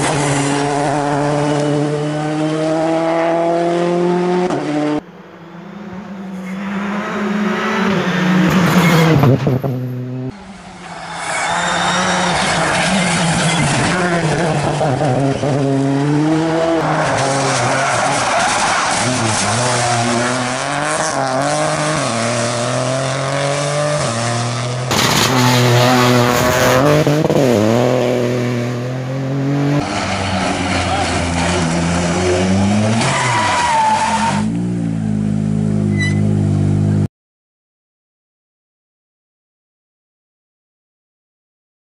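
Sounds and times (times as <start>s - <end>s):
rally car engines revving: 0.0s - 37.1s
tyre squeal: 10.4s - 14.2s, 32.8s - 34.5s, 35.9s - 36.4s.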